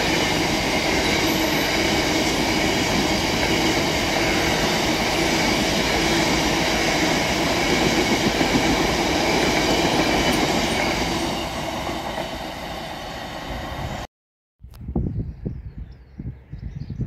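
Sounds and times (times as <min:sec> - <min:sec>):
train wheels rumbling on rails: 0:00.0 - 0:14.1.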